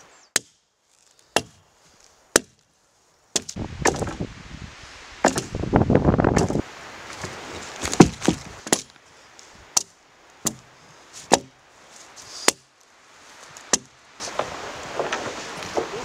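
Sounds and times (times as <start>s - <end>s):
axe chopping wood: 0.3s - 0.6s, 1.3s - 1.6s, 2.3s - 2.6s, 3.4s - 4.2s, 5.2s - 5.6s, 6.3s - 6.6s, 7.8s - 9.0s, 9.7s - 11.6s, 12.5s - 12.7s, 13.7s - 14.4s.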